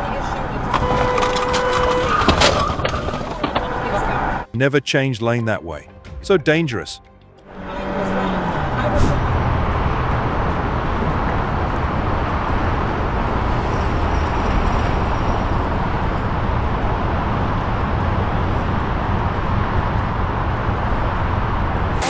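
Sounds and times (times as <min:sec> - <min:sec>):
road noise: 0:00.0 - 0:04.6, 0:07.2 - 0:22.0
low engine hum: 0:07.4 - 0:22.0.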